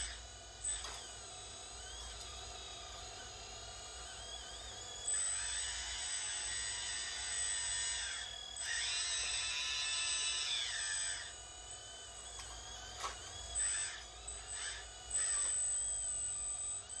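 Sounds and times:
hydraulic pump whining: 0:00.0 - 0:17.0.

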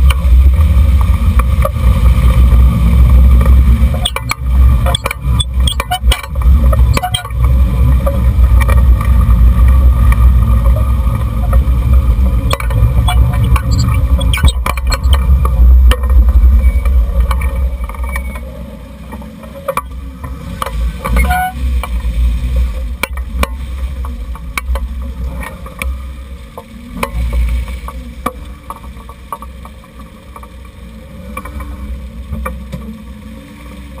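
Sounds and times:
road and wind noise rumble: 0:00.0 - 0:34.0
sharp clicks and knocks: 0:03.3 - 0:18.5, 0:19.1 - 0:22.0, 0:23.0 - 0:26.0
brief squeak: 0:04.0 - 0:06.3, 0:06.9 - 0:07.3, 0:12.5 - 0:15.2, 0:21.1 - 0:21.6.

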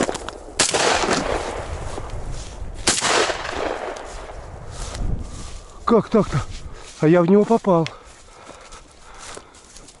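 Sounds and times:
shotgun shots echoing: 0:00.0 - 0:01.8, 0:02.8 - 0:04.2.

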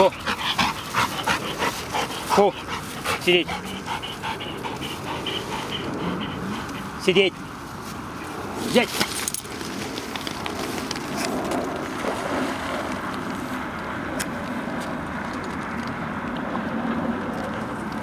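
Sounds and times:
wind rumble on microphone: 0:03.8 - 0:18.0.

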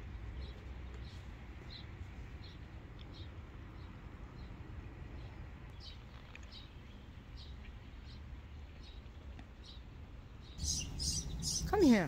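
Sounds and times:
low outdoor rumble: 0:00.0 - 0:12.0
small bird chirping: 0:10.4 - 0:12.0.

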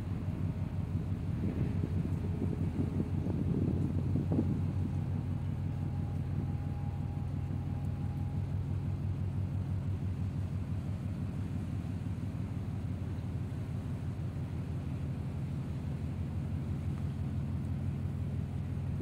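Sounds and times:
ship engine drone: 0:00.0 - 0:19.0.

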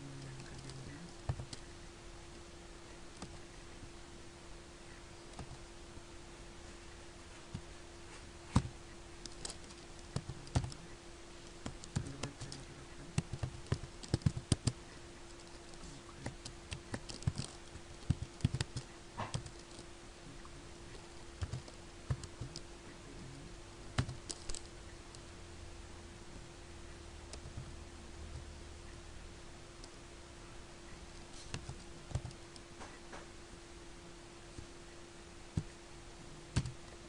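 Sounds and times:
low hum: 0:00.0 - 0:37.0
typing on keyboard: 0:08.6 - 0:10.8, 0:11.6 - 0:14.8, 0:15.4 - 0:19.8, 0:20.9 - 0:22.6, 0:24.0 - 0:24.7, 0:31.5 - 0:32.6, 0:36.5 - 0:36.8.

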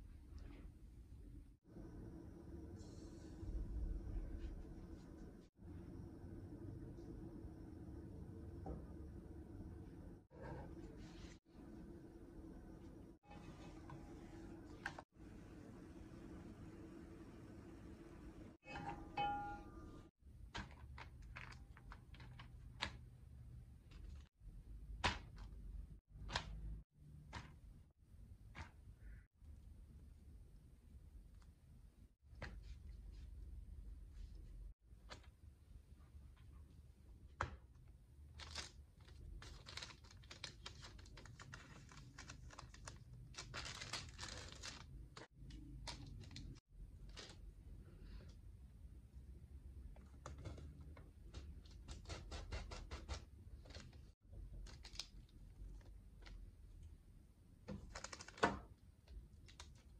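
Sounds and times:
baking paper crinkling: 0:38.2 - 0:47.6, 0:51.5 - 0:56.4, 0:57.7 - 0:59.9.

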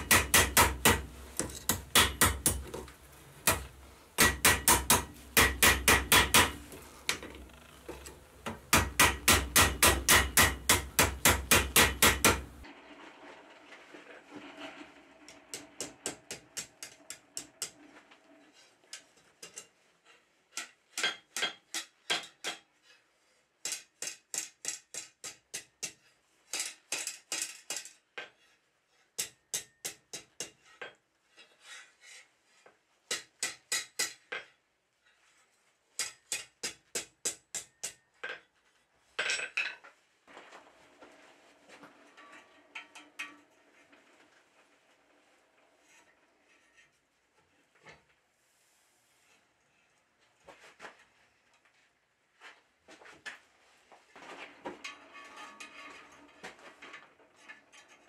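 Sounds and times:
hammer striking steel on anvil: 0:00.0 - 0:02.7, 0:03.4 - 0:06.6, 0:08.5 - 0:12.6, 0:23.7 - 0:27.1, 0:29.2 - 0:30.6, 0:33.1 - 0:34.3, 0:36.0 - 0:38.0.

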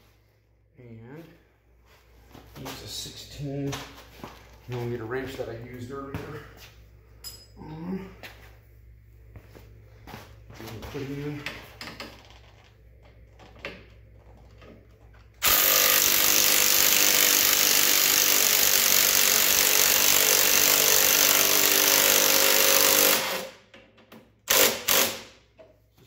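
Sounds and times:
impact wrench hammering: 0:15.4 - 0:23.6, 0:24.5 - 0:25.4.

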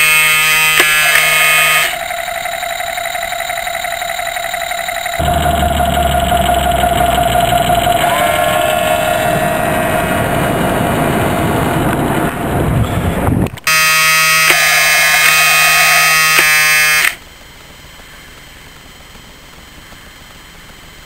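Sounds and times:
model boat motor whining: 0:00.0 - 0:10.5, 0:13.7 - 0:17.2
buzzing drone: 0:00.0 - 0:17.2
low hiss: 0:17.2 - 0:21.0.

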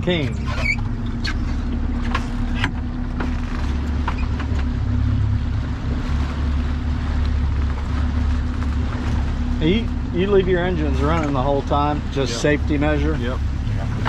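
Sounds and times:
outboard engines running: 0:00.0 - 0:14.0
water noise: 0:00.0 - 0:14.0
wind: 0:00.0 - 0:14.0.

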